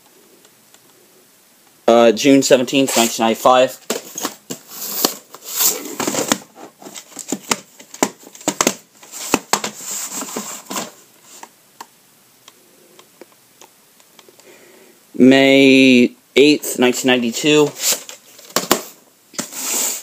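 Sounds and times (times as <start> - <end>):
plastic cases clicking and rustling: 3.8 - 11.5, 17.8 - 19.5.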